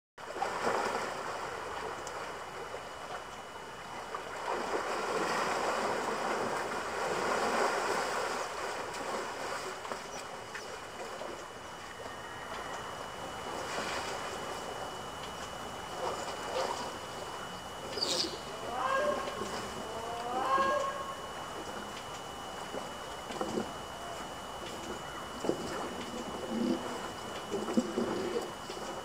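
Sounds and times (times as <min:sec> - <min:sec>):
water sloshing and splashing: 0:00.2 - 0:12.2.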